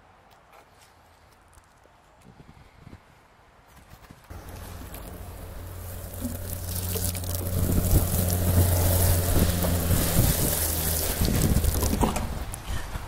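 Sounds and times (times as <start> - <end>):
hose spraying water onto soil: 4.3 - 12.6
steady low hum: 4.3 - 12.6.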